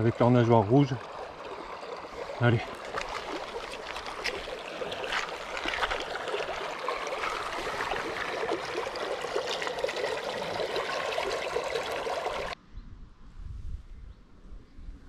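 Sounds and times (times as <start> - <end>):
river water babbling over stones: 0.0 - 12.6.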